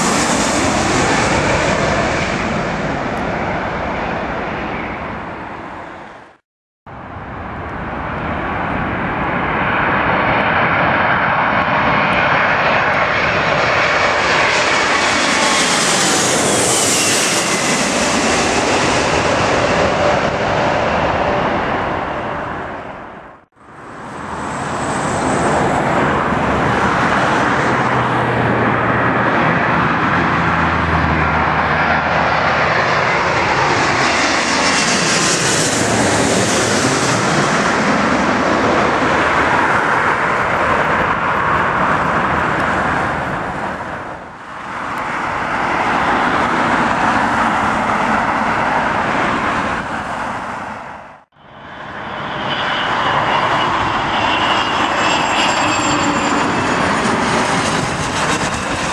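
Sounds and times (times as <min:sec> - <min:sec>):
jet airliner roaring overhead: 0:00.0 - 0:58.9
jet engine whine: 0:00.0 - 0:58.9
wind rumbling on microphone: 0:55.7 - 0:58.9.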